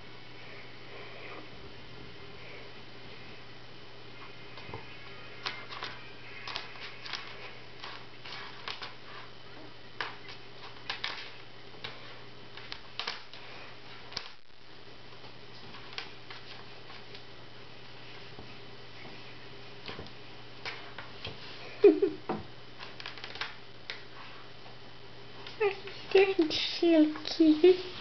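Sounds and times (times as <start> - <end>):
faint low hum: 0.0 - 28.0.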